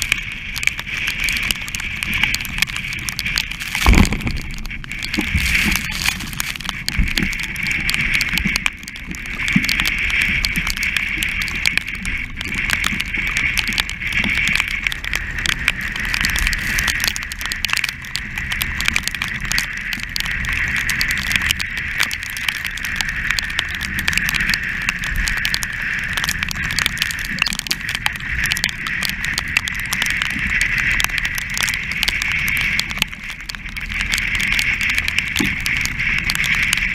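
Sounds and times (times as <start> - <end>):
low wind buffeting rumble: 0.0 - 36.9
sail flapping and crackling: 0.0 - 36.9.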